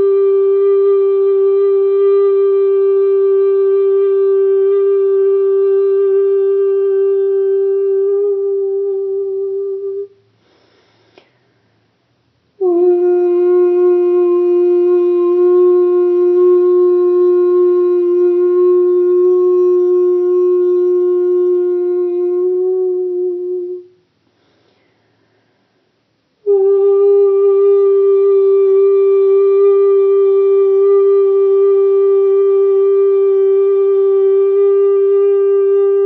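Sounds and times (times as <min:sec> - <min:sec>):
person singing wordless held notes: 0:00.0 - 0:10.2, 0:12.6 - 0:24.0.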